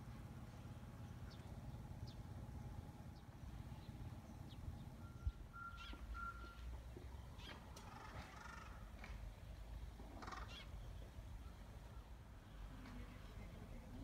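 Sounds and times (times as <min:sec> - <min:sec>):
low steady rumble: 0:00.0 - 0:14.0
bird chirps: 0:03.1 - 0:08.2.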